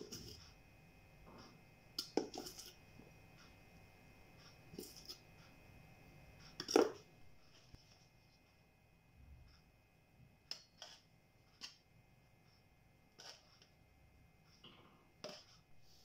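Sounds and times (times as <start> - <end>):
spoon tapping metal bowl: 2.0 - 2.7, 6.6 - 7.0.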